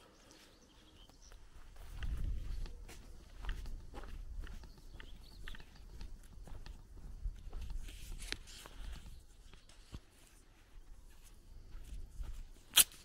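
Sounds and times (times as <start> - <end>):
footsteps on sandy dirt: 0.0 - 13.0.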